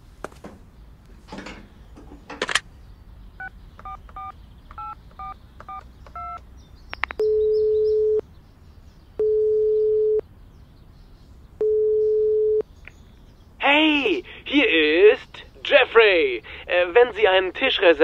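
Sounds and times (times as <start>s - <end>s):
touch-tone keypad beeps: 3.4s - 6.4s
telephone ringback tones: 7.2s - 8.2s, 9.2s - 10.2s, 11.6s - 12.6s.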